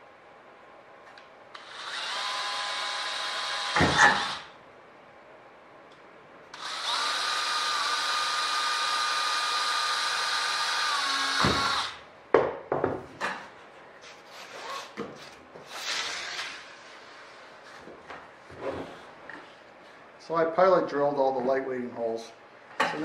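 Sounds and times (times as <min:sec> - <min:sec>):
cordless drill running: 0:01.5 - 0:04.5, 0:06.5 - 0:12.0.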